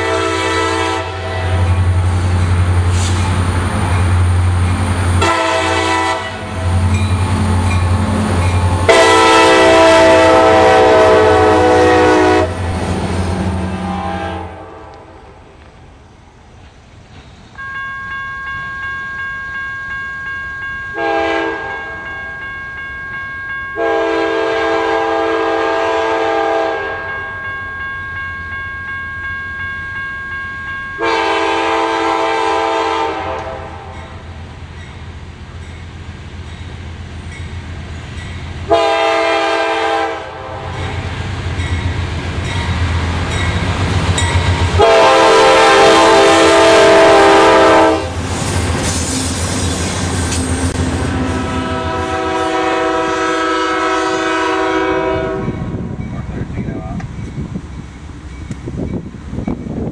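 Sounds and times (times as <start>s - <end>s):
locomotive air horn blasts: 0.0s - 1.8s, 5.2s - 6.8s, 8.8s - 12.7s, 13.6s - 15.2s, 21.0s - 22.0s, 23.8s - 27.1s, 31.0s - 34.0s, 38.6s - 40.8s, 44.8s - 48.2s, 51.2s - 55.7s
freight train rumble: 0.0s - 59.9s
locomotive bell ringing: 3.8s - 11.8s, 17.5s - 25.0s, 26.8s - 32.2s, 33.6s - 39.4s, 40.6s - 48.0s, 55.5s - 59.9s.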